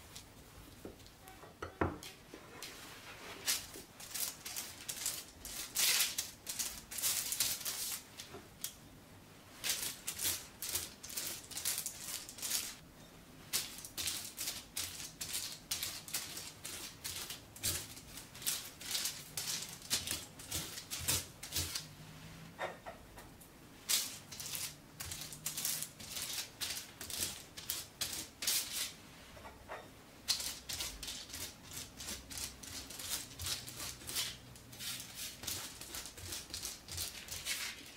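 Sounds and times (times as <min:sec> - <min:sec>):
pastry brush scratching on paper: 0:30.4 - 0:37.9.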